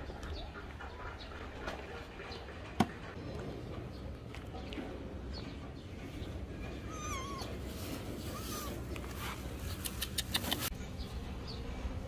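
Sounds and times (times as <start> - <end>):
kitten meowing: 6.9 - 7.6.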